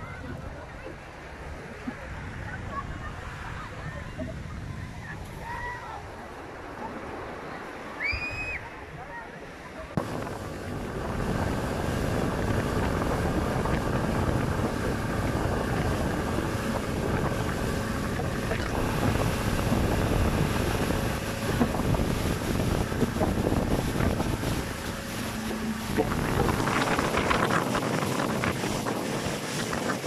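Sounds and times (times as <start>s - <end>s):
wind buffeting microphone: 0.0s - 7.3s, 9.9s - 30.0s
water rushing and churning: 0.0s - 30.0s
outboard motor running: 10.0s - 30.0s.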